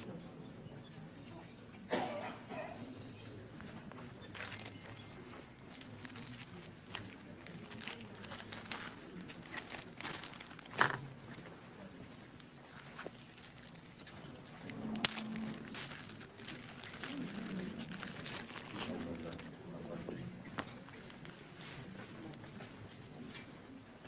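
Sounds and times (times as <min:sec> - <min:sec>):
faint room hum: 0:00.0 - 0:24.0
paper rustling: 0:03.8 - 0:19.5.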